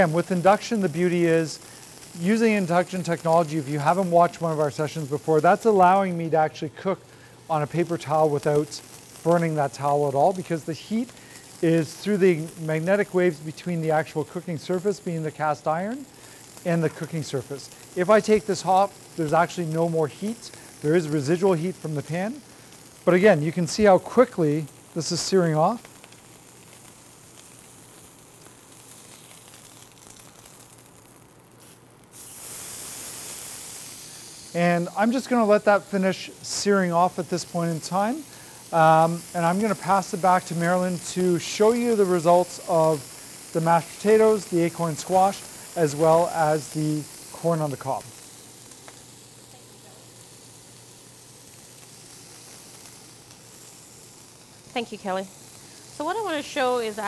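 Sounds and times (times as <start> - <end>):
steak sizzling in a pan: 0.0 - 57.0.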